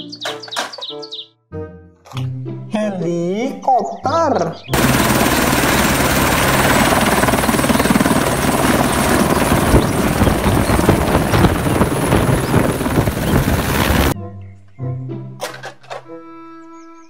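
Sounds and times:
helicopter turbine whine: 0:04.7 - 0:14.2
rotor blades chopping: 0:04.8 - 0:14.2.

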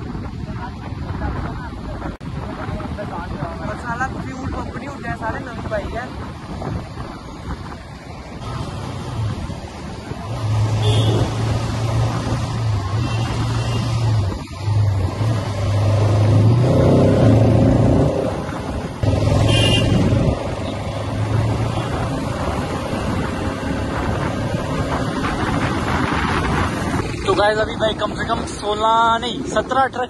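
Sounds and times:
wind and road noise: 0:00.0 - 0:30.0
motorcycle engine drone: 0:06.8 - 0:27.5.

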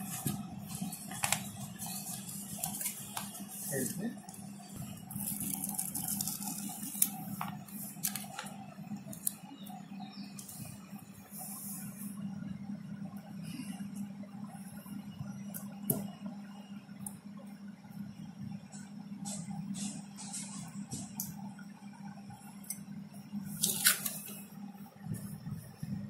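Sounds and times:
steady low hum: 0:00.0 - 0:26.0
plastic sticker sheet crinkling: 0:05.1 - 0:08.5.

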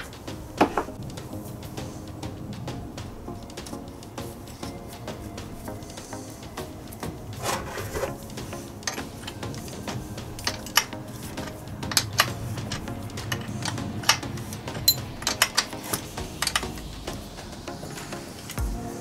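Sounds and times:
metal tools clinking: 0:14.8 - 0:15.7.

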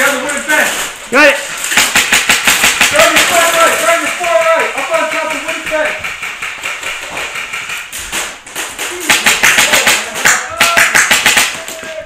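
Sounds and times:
airsoft gunfire bursts: 0:01.7 - 0:06.5.

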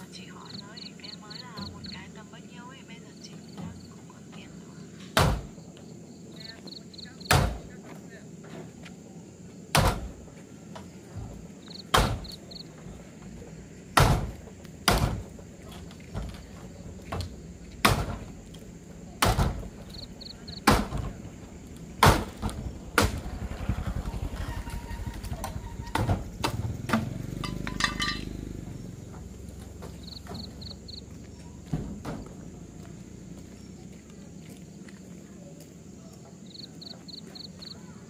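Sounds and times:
sharp chopping blows: 0:05.2 - 0:05.6, 0:07.3 - 0:07.7, 0:09.7 - 0:10.2, 0:11.9 - 0:12.4, 0:14.0 - 0:15.3, 0:17.1 - 0:18.3, 0:19.2 - 0:19.9, 0:20.6 - 0:21.2, 0:22.0 - 0:23.4.

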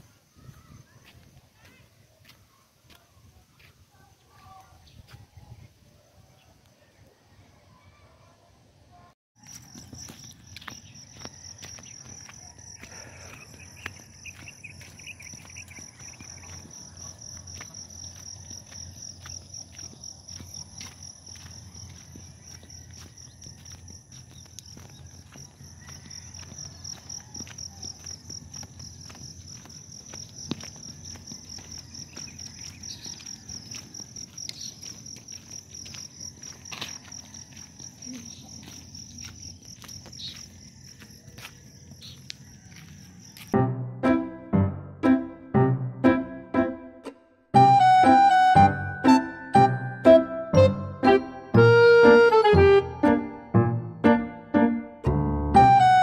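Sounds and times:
footsteps scuffing: 0:00.4 - 0:05.3, 0:09.4 - 0:43.6
insects chirping: 0:09.4 - 0:43.6.

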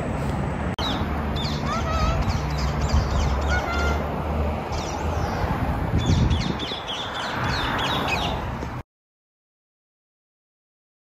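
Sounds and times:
street traffic rumble: 0:00.0 - 0:08.8
wind: 0:00.0 - 0:08.9
birds chirping: 0:00.8 - 0:08.5.

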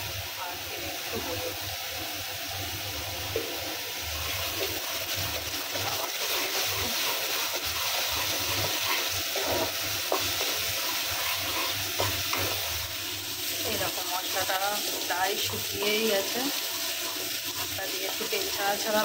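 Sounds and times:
paste sizzling in oil: 0:00.0 - 0:19.0
wooden spatula scraping pan: 0:05.4 - 0:12.7, 0:14.8 - 0:19.0.

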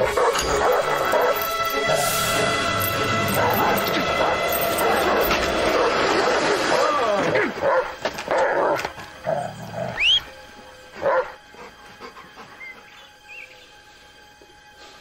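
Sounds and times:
dog barking: 0:00.0 - 0:02.0, 0:03.2 - 0:07.0, 0:07.6 - 0:08.8, 0:11.0 - 0:11.4.

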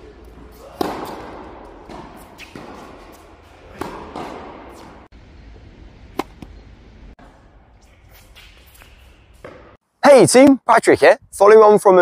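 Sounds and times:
racket hitting tennis ball: 0:00.6 - 0:05.1, 0:06.1 - 0:06.5.

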